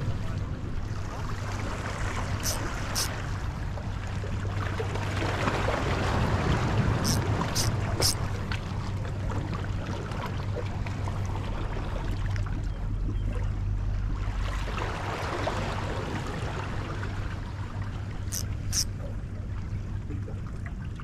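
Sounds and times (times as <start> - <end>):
low constant hum: 0.0 - 21.0
seawater washing: 0.9 - 9.4, 18.0 - 19.0
high hissing swishes: 2.4 - 3.1.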